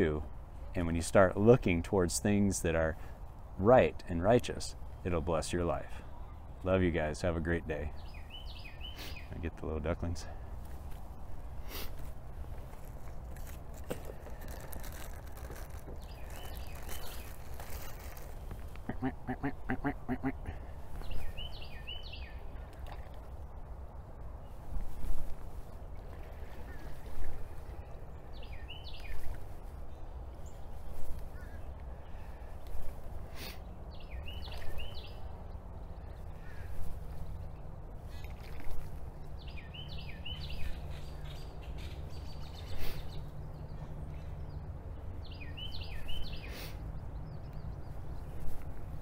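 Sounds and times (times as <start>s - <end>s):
ducklings peeping: 18.8s - 22.2s.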